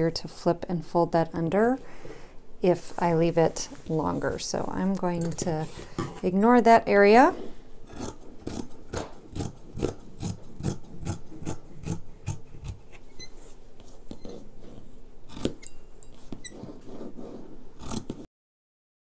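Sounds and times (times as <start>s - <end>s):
scissors snipping fabric: 7.9s - 13.0s, 14.1s - 18.3s.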